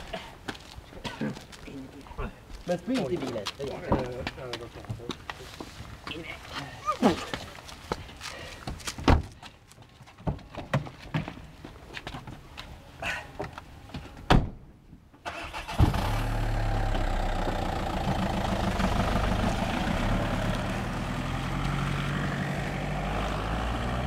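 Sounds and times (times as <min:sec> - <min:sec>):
car engine starting and running: 0:15.3 - 0:24.0.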